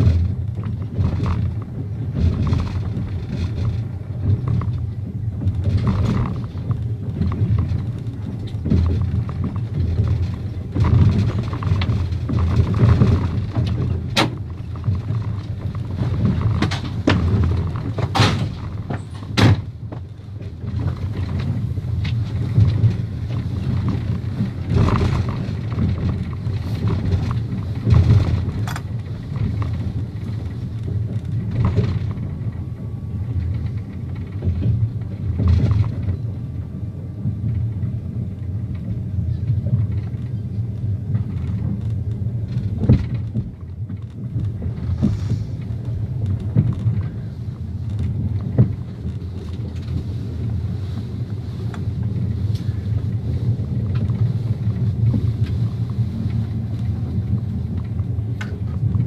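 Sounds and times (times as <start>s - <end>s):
knocks and clanks: 0.0s - 36.6s, 41.0s - 50.2s
vehicle rumble: 0.0s - 59.0s.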